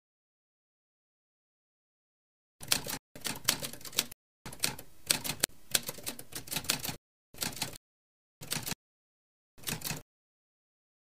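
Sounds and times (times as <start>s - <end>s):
typewriter keys clacking: 2.6s - 7.8s, 8.4s - 8.8s, 9.6s - 10.0s.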